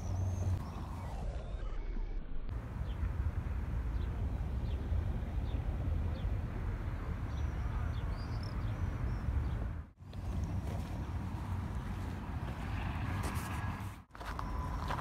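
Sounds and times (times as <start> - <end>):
small birds chirping: 7.0 - 10.9.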